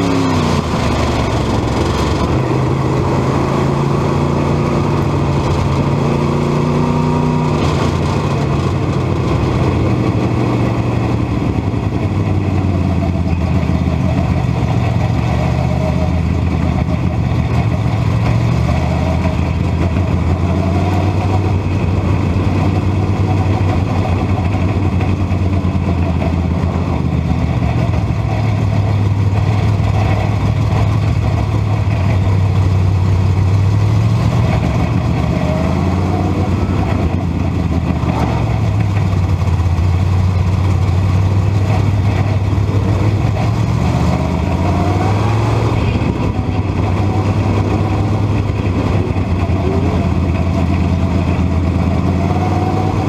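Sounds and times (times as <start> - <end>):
race car engine: 0.0 - 53.0.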